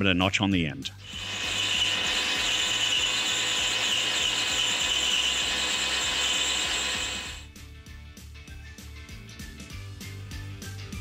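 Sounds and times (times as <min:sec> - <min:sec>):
metal lathe whirring: 0:01.0 - 0:07.4.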